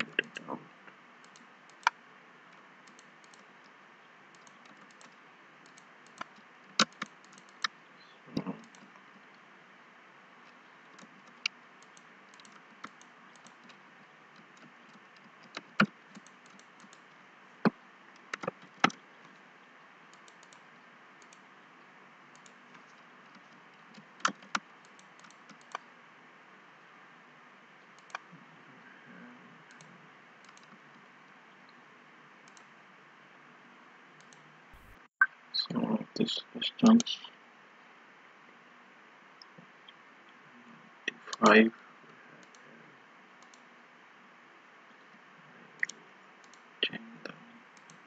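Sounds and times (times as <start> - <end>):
mouse clicks: 4.3 - 7.8.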